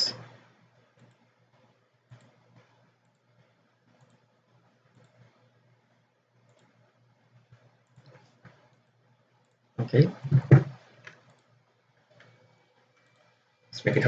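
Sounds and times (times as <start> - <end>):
low steady hum: 0.0 - 14.0
computer mouse clicks: 0.1 - 5.6, 6.4 - 9.6, 11.0 - 13.4.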